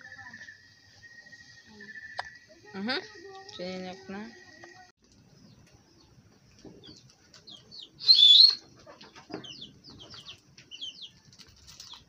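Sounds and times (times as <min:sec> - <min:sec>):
small birds chirping: 0:00.0 - 0:12.0
shrill bird call: 0:08.0 - 0:08.7.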